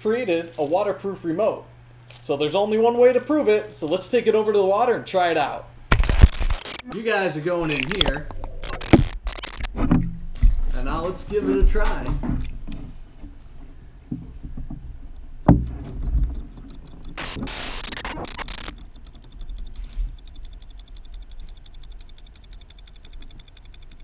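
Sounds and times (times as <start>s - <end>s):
small motor ticking underwater: 14.8s - 24.0s
rushing noise: 15.6s - 19.9s.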